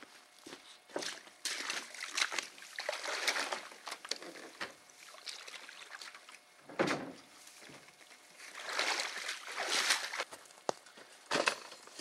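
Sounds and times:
water splashing: 1.5 - 4.2, 4.9 - 6.4, 8.4 - 10.3.

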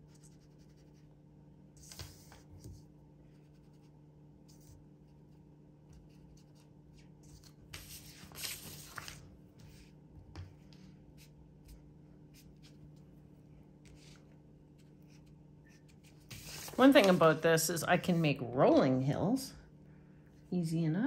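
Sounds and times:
sponge dabbing on paper: 13.9 - 17.4.

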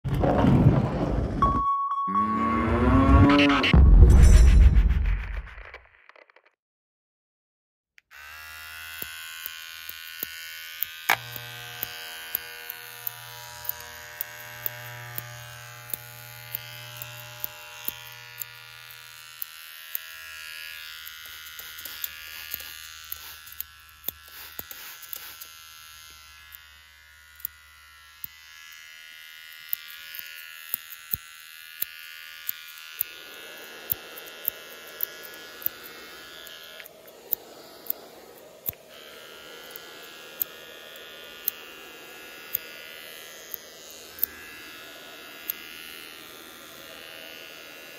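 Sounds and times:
low hum: 0.1 - 5.8
electric hair clippers buzzing: 8.0 - 47.9.

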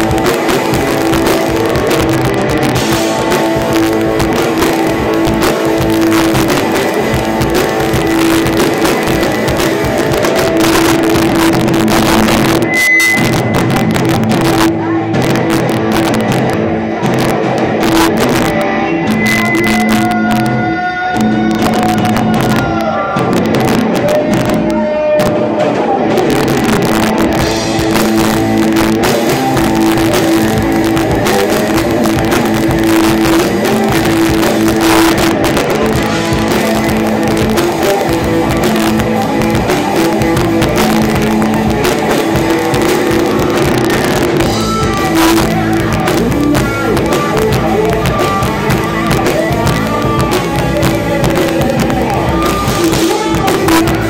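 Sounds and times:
bass guitar: 0.0 - 54.0
drums: 0.0 - 54.0
electric guitars: 0.0 - 54.0.

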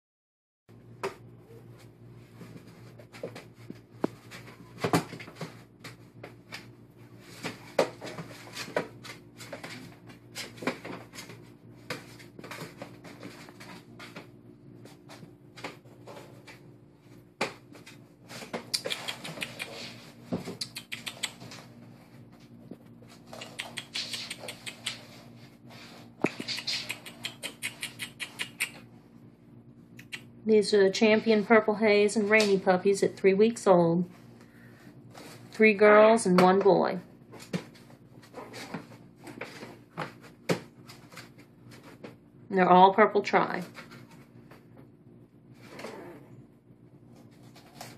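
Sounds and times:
faint steady hum: 0.8 - 47.9
small paws scratching on plastic: 2.3 - 28.8, 47.1 - 47.9.

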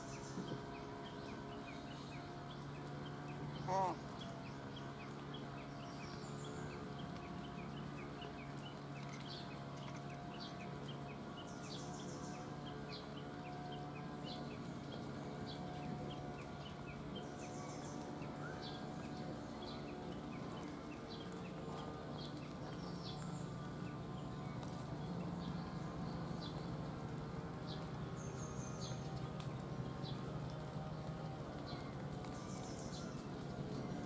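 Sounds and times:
bird-like calls: 0.0 - 24.3
steady low hum: 0.0 - 34.0.

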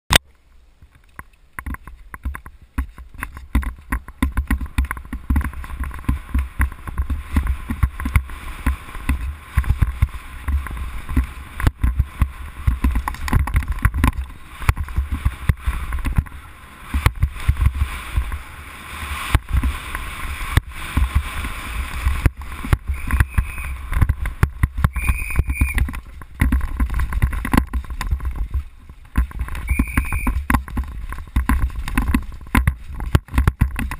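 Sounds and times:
tyres on dirt: 0.1 - 33.9
wind rumbling on microphone: 0.5 - 33.9
bike rattling and knocking: 0.8 - 18.5, 19.1 - 33.9
short high squeals: 22.9 - 23.8, 24.9 - 25.8, 29.6 - 30.4.

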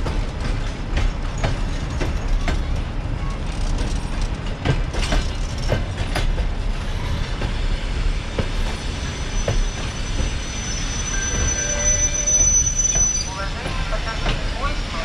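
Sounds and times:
wheels clacking over rail joints: 0.0 - 10.4
train coaches rumbling: 0.0 - 15.0
braking wheels squealing: 8.3 - 14.0.

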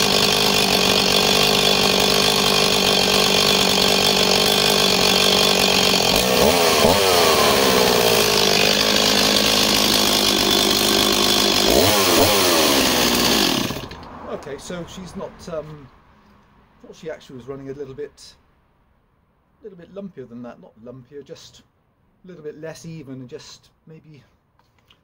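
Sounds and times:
chainsaw idling and revving: 0.0 - 14.8.

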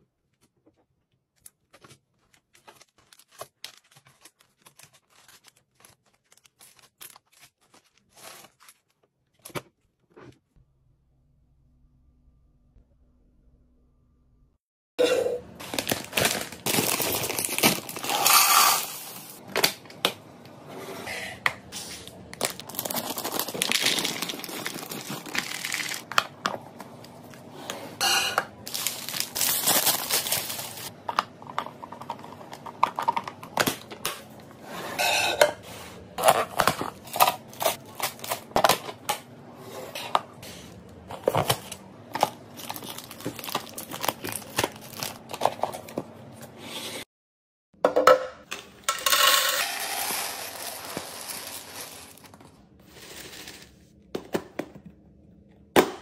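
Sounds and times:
plastic snack bag crinkling: 1.6 - 9.0, 15.6 - 19.5, 22.1 - 26.1, 28.6 - 31.0, 36.5 - 38.8, 41.2 - 45.9, 49.0 - 53.8.

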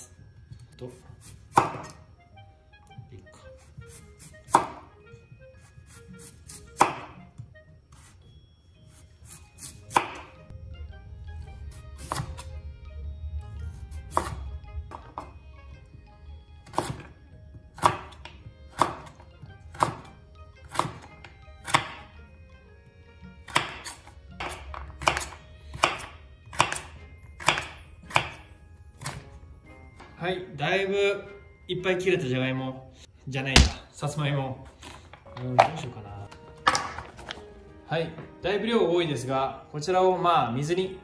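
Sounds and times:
soft background music: 0.0 - 41.0
knife chopping on cutting board: 1.2 - 2.0, 3.6 - 4.9, 5.6 - 7.2, 9.3 - 10.3, 12.0 - 12.4, 14.1 - 15.2, 16.6 - 17.1, 17.7 - 22.0, 23.5 - 28.4, 33.6 - 33.8.

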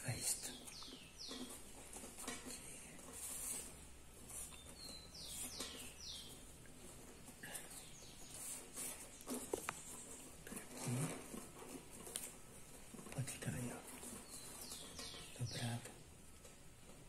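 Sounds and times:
small bird chirping: 0.0 - 3.6, 4.3 - 6.8, 7.4 - 11.2, 13.1 - 16.0
weaving tubes rustling and scraping: 0.0 - 17.0.

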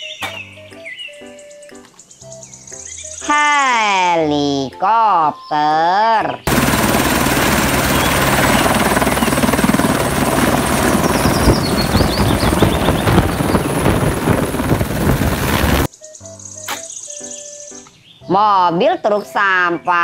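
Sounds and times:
helicopter rotor blades beating: 6.5 - 15.9
helicopter turbine engine tone: 6.5 - 15.9.

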